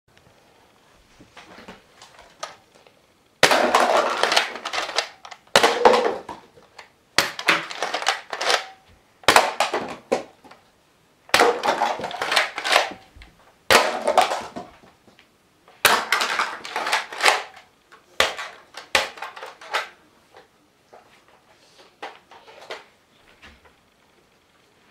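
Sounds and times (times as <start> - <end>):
plastic cups clattering: 3.4 - 10.6, 11.3 - 13.1, 13.7 - 14.9, 15.8 - 17.6.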